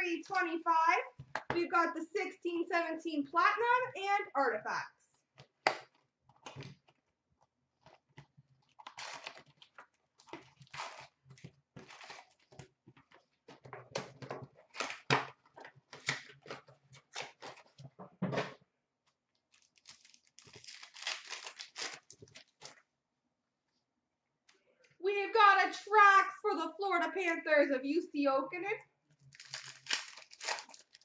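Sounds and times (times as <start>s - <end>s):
foil wrapper tearing: 8.7s - 11.2s, 11.8s - 12.6s, 19.5s - 22.7s, 29.3s - 31.0s
foil packs rustling and crinkling: 8.7s - 12.7s, 19.5s - 22.8s, 29.3s - 31.0s.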